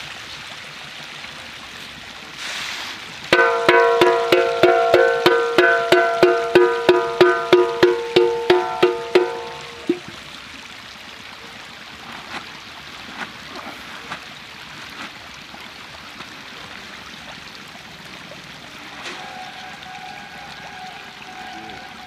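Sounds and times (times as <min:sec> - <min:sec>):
watery rush: 0:00.0 - 0:22.0
small splashes and clicks: 0:11.9 - 0:19.2.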